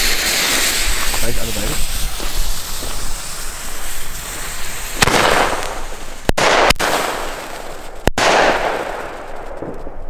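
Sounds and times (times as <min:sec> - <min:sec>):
long rushing hiss: 0:00.0 - 0:06.3
firework report: 0:00.0 - 0:10.0
sharp firework bangs: 0:00.0 - 0:10.0.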